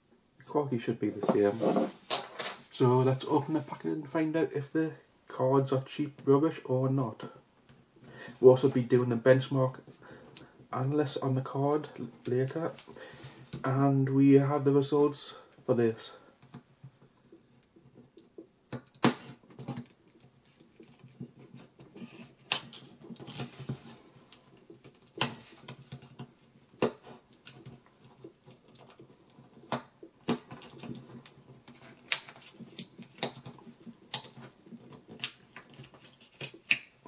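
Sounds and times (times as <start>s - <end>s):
short scraping rustles: 1.4s - 2.6s
plastic packaging clicking and crackling: 18.1s - 37.0s.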